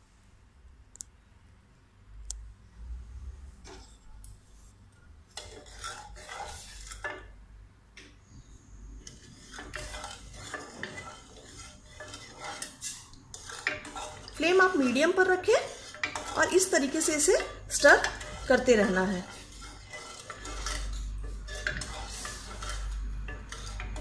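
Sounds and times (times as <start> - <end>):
spatula scraping a saucepan: 3.6 - 4.7, 5.3 - 7.4, 8.3 - 24.0.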